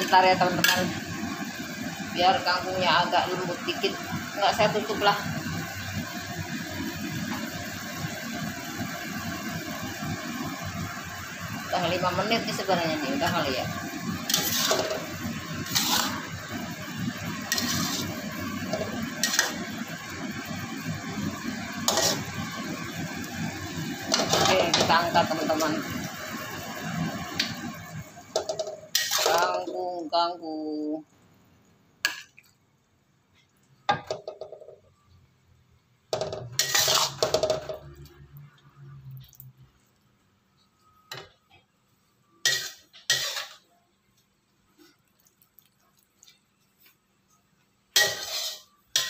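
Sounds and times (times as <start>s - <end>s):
stir-fry bubbling in a wok: 0.0s - 30.0s, 31.9s - 40.8s, 41.4s - 49.0s
wok ringing: 11.8s - 20.2s, 47.9s - 49.0s
metal spatula scraping a wok: 12.5s - 20.2s, 21.4s - 22.9s, 28.4s - 29.7s, 36.5s - 37.7s, 42.4s - 43.7s, 47.9s - 49.0s.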